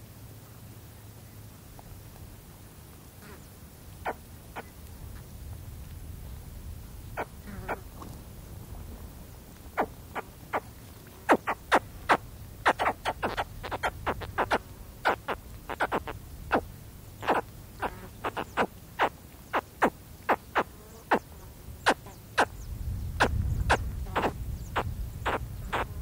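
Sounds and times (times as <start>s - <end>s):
faint wind rumble: 0.0s - 26.0s
baby caimans chirping: 11.3s - 21.2s, 21.8s - 26.0s.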